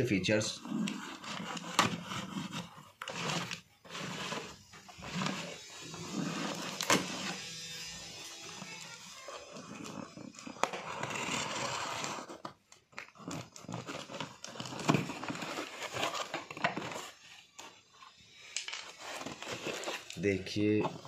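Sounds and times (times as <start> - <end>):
cardboard rustling and crinkling: 0.3 - 7.5, 8.4 - 18.2, 18.8 - 21.0
box cutter slicing packing tape: 0.9 - 12.5.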